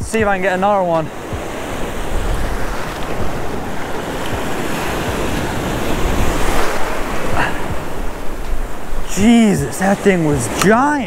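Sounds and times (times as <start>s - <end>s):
ocean surf washing: 0.0s - 11.0s
wind noise on microphone: 0.0s - 11.0s.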